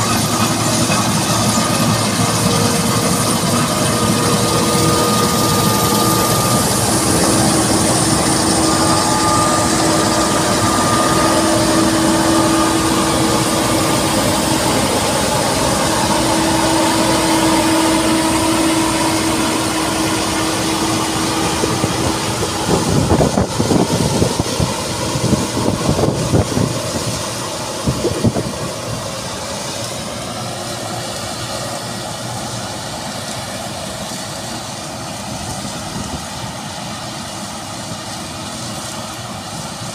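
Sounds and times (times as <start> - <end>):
combine harvester drone: 0.0 - 39.9.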